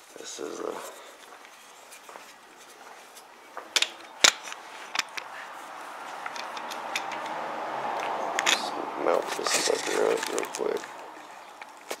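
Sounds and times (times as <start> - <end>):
handling rustle: 9.2 - 12.0.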